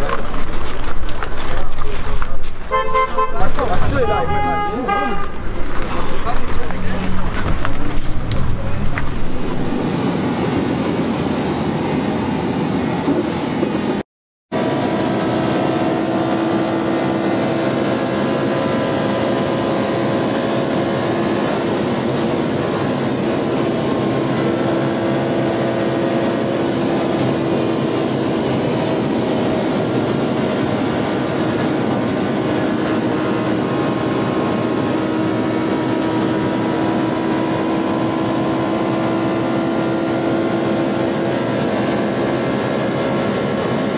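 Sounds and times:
car engine drone: 0.0s - 43.9s
tyre rush: 5.0s - 9.9s
wind rush: 5.3s - 14.0s.

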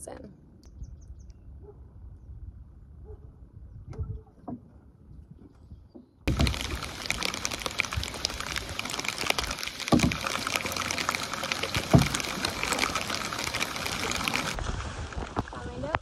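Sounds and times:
paddle splashing: 6.3s - 16.0s
rain on water: 6.3s - 16.0s.

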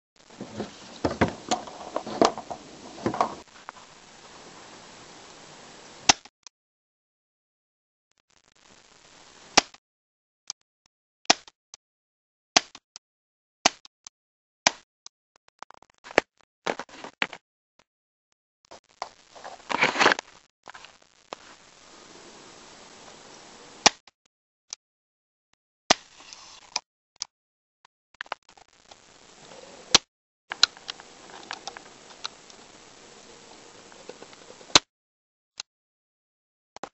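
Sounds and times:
dense clattering noise: 0.2s - 3.6s.

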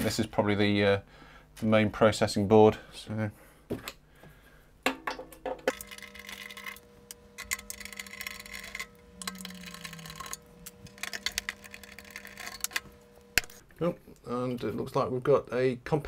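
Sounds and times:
electric screwdriver whine: 5.7s - 13.7s.

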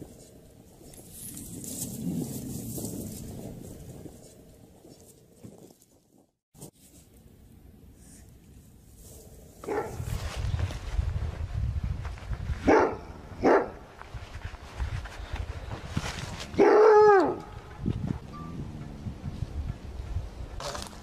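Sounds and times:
low rumble: 17.5s - 20.7s.

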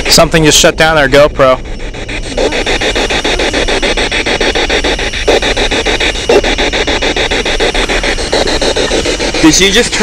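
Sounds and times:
choppy radio static and fragments: 0.0s - 10.0s.

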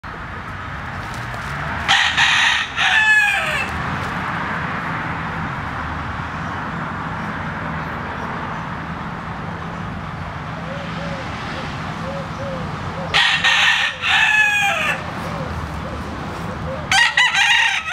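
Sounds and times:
rooster crowing: 1.8s - 3.8s, 13.1s - 15.1s, 16.9s - 17.9s.

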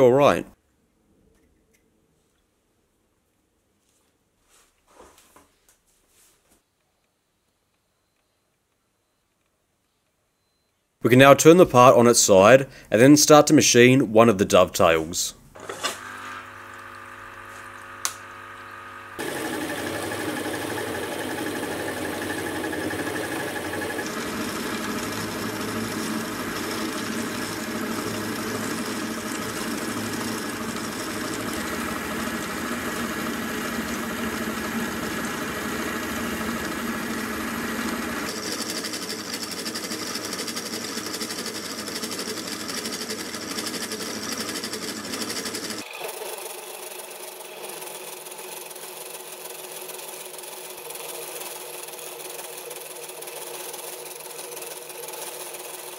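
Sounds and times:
milling machine motor whine: 15.6s - 55.9s
end mill cutting metal: 19.2s - 49.8s.

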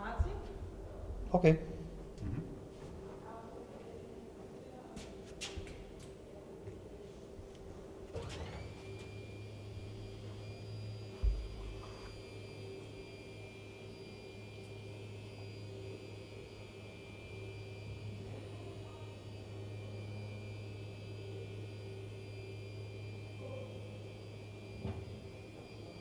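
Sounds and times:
electric door motor humming: 7.5s - 26.0s.

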